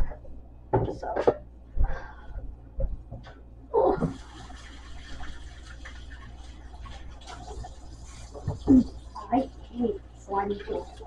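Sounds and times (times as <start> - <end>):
pan being washed: 3.8 - 11.0
tap water running: 3.8 - 11.0.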